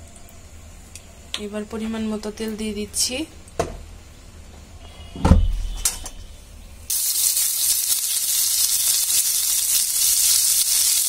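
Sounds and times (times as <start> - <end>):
onions sizzling in hot oil: 6.9 - 11.0.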